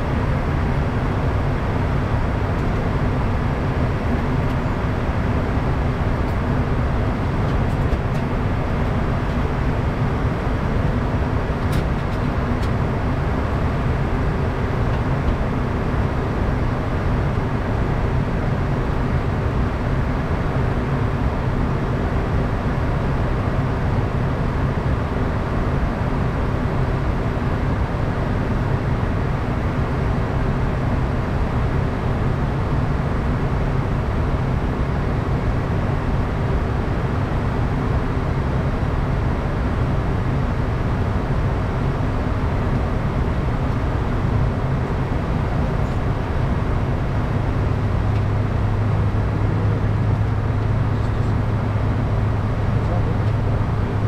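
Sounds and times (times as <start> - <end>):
airflow noise over aircraft: 0.0 - 54.0
jet engines droning: 0.0 - 54.0.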